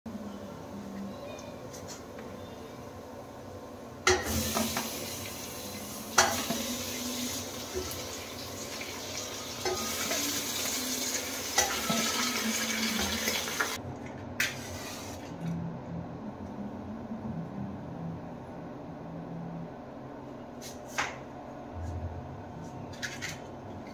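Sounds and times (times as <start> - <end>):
chicken sizzling in a pot: 4.1 - 13.8.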